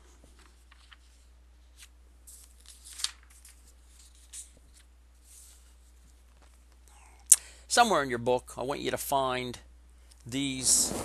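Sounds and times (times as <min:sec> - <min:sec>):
paper pages rustling: 0:00.2 - 0:06.7.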